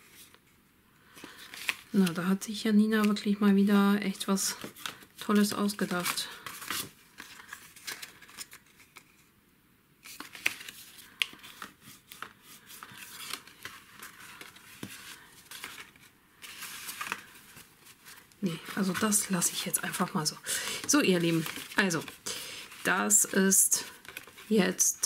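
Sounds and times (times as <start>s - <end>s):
cardstock rustling and sliding: 10.0s - 20.1s.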